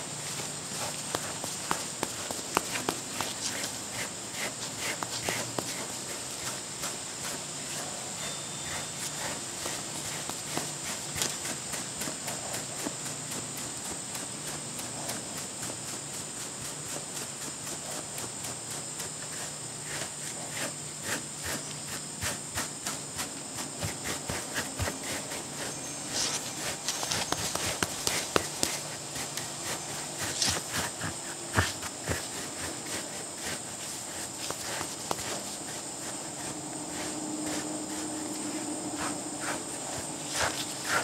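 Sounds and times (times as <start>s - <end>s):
brush stroking dog's coat: 0.1s - 41.0s
high-pitched whine: 7.8s - 9.7s, 35.2s - 41.0s.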